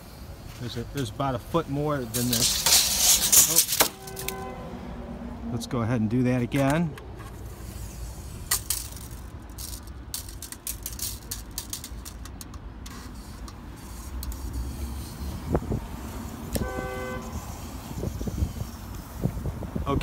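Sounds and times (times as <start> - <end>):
low street rumble: 0.0 - 20.0
tape measure clicks: 2.1 - 4.4, 6.5 - 15.3
short horn toot: 3.9 - 4.8, 16.6 - 17.4.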